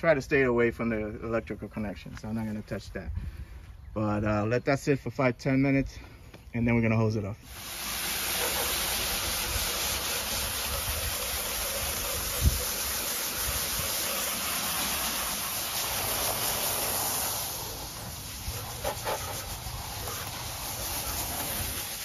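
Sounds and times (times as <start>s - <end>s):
hose water spraying onto metal coil: 7.4s - 22.0s.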